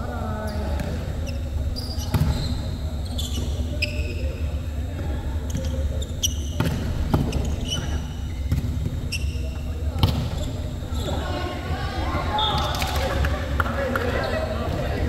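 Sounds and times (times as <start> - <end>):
low hall hum: 0.0 - 15.0
sneakers squeaking on court: 0.5 - 4.4, 5.4 - 11.3.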